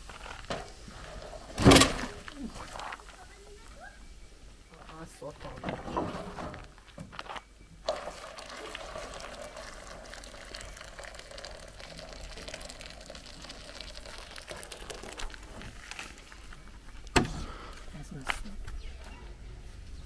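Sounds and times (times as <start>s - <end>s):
liquid pouring into metal basin: 7.8s - 15.9s.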